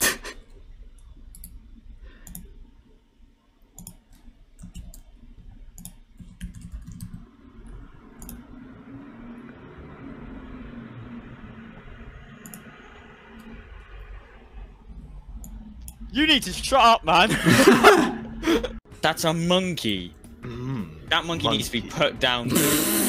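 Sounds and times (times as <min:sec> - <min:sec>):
low background hum: 0:00.0 - 0:23.0
computer mouse and keyboard clicks: 0:02.2 - 0:02.5, 0:03.8 - 0:05.1, 0:05.8 - 0:07.2.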